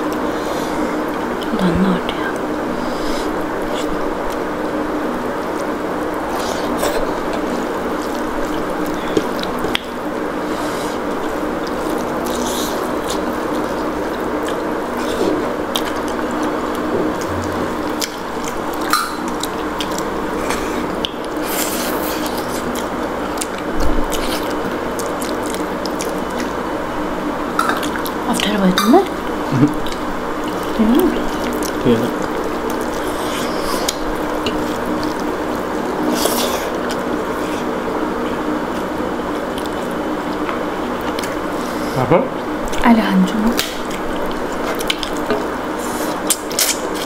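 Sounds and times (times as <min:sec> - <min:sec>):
wet eating mouth sounds: 0:05.4 - 0:26.8, 0:27.6 - 0:42.8, 0:43.5 - 0:47.0.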